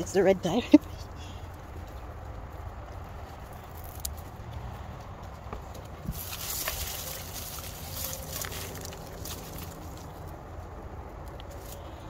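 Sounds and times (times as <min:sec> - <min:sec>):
hands digging in potting soil: 0:06.0 - 0:10.3.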